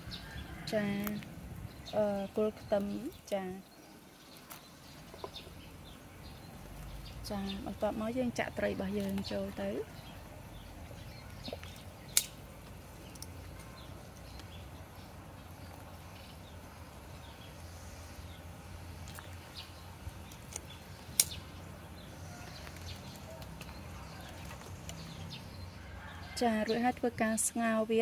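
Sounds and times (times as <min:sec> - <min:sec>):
sharp clicks: 0:11.4 - 0:12.4, 0:20.3 - 0:21.5.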